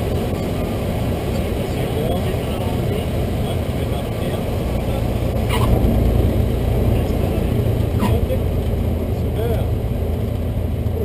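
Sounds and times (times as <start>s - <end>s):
airplane engine and propeller: 0.0s - 11.0s.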